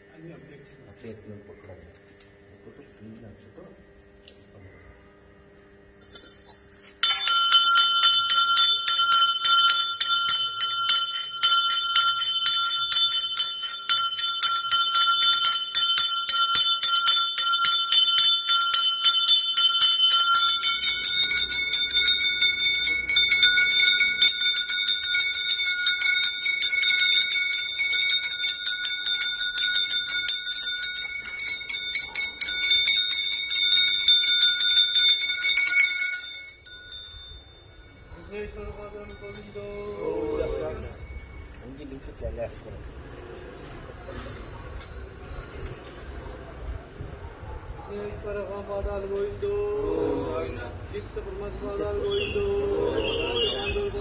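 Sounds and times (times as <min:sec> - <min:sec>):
bells rung rapidly: 0:07.0 - 0:42.2, 0:43.8 - 0:46.8.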